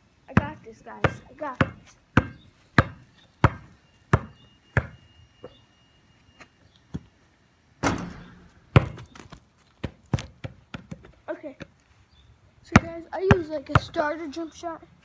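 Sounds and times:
basketball bouncing: 0:00.3 - 0:05.0, 0:07.8 - 0:11.1, 0:12.7 - 0:14.1
loud ball impact: 0:07.8 - 0:09.1.

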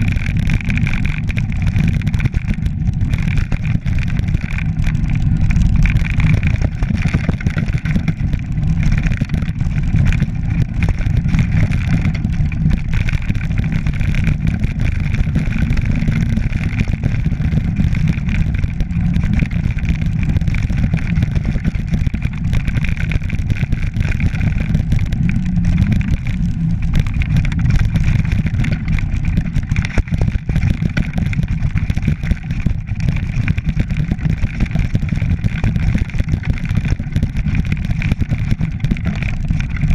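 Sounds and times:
tyres crunching over rocks: 0:00.0 - 0:35.8
low rumble of wind: 0:00.0 - 0:39.9.

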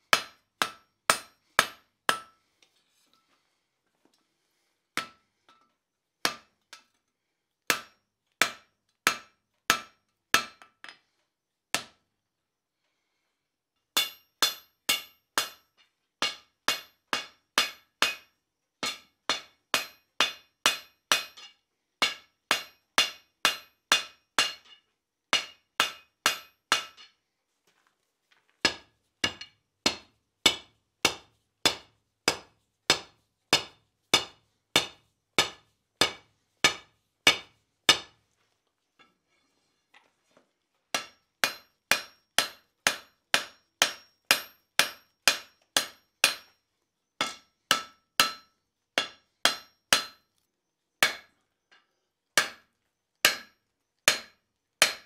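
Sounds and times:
hammer striking steel on anvil: 0:00.1 - 0:02.4, 0:05.0 - 0:06.9, 0:07.7 - 0:10.8, 0:14.0 - 0:27.1, 0:28.6 - 0:38.2, 0:41.0 - 0:46.6, 0:47.2 - 0:50.3, 0:51.0 - 0:51.3, 0:52.4 - 0:52.6, 0:53.2 - 0:55.0.

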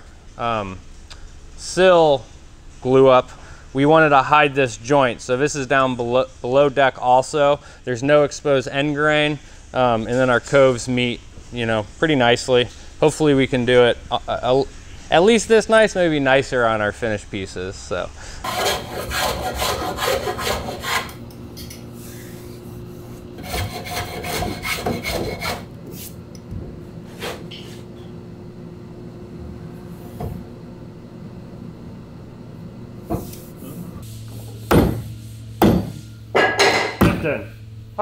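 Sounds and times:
steady low hum: 0:00.0 - 0:38.0
hand plane scraping wood: 0:18.4 - 0:21.2, 0:23.4 - 0:25.7
fist knocking on tool: 0:34.7 - 0:36.0.

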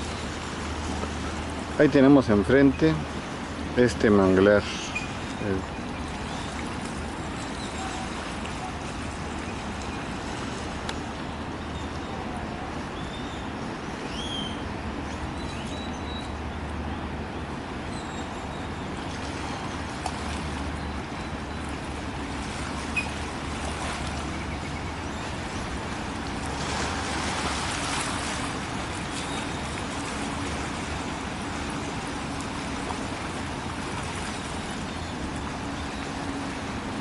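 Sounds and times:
distant road traffic rumble: 0:00.0 - 0:37.0
faint bird chirps: 0:14.1 - 0:14.6.

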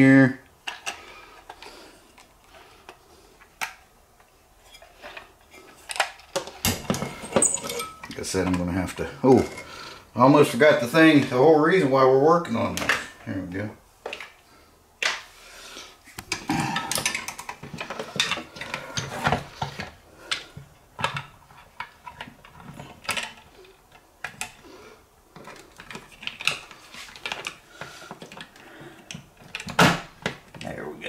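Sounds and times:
plastic parts clicking and rattling: 0:00.6 - 0:03.8, 0:04.8 - 0:08.7, 0:16.2 - 0:24.6, 0:25.3 - 0:30.8.

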